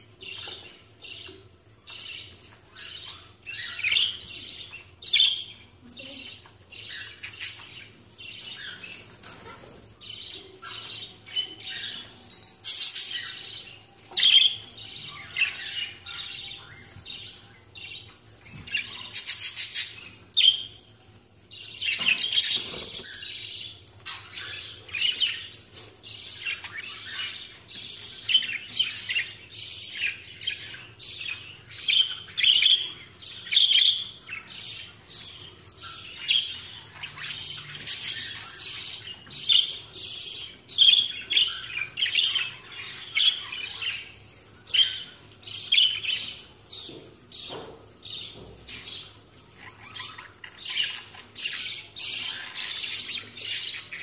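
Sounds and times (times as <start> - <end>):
budgerigars chirping: 21.6 - 54.0.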